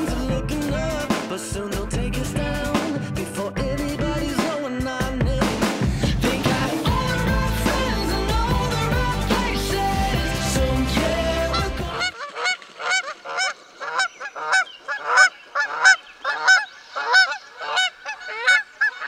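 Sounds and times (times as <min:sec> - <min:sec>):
background music: 0:00.0 - 0:12.2
geese honking: 0:08.8 - 0:19.0.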